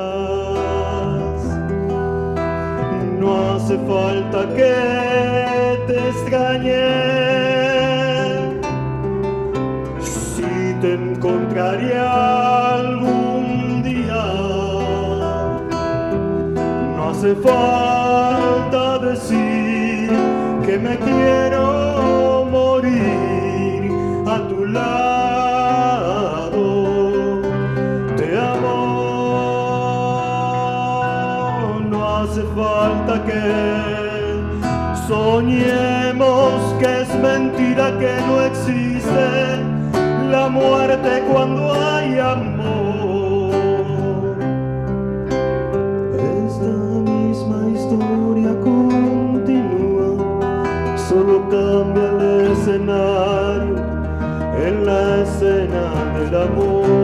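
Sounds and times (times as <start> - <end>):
man singing into microphone: 0.0 - 44.9, 45.8 - 57.0
keyboard accompaniment: 0.0 - 57.0.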